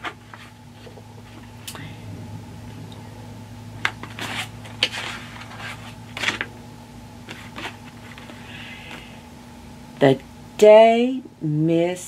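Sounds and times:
book pages turning: 0.0s - 1.5s, 3.8s - 6.5s, 7.2s - 9.1s
low steady hum: 0.0s - 12.0s.

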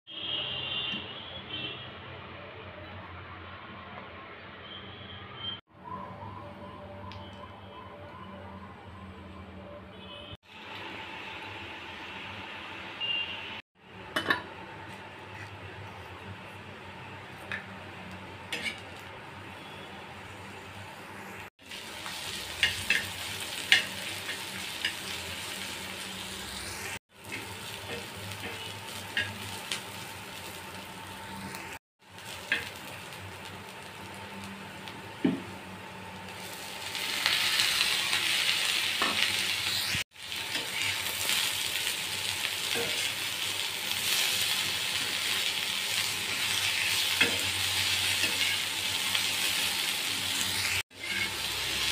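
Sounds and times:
vegetables sizzling on iron pan: 17.3s - 19.2s, 21.3s - 51.9s
spatula scraping pan: 46.4s - 48.8s, 50.7s - 51.8s.

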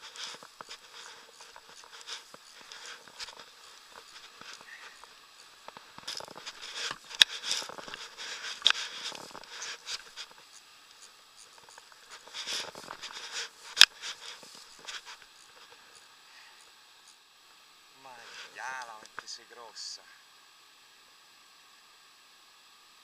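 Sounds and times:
rustling and scraping handling noise: 0.0s - 16.0s, 18.1s - 19.4s.

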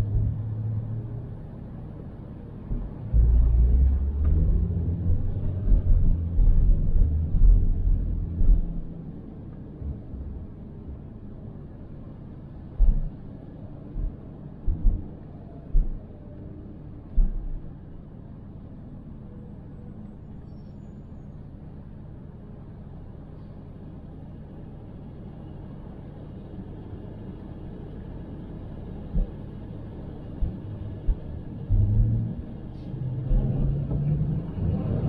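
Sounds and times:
car road rumble: 0.0s - 35.0s
sharp low thumps: 2.7s - 9.0s, 12.8s - 13.2s, 13.9s - 15.1s, 15.7s - 16.0s.

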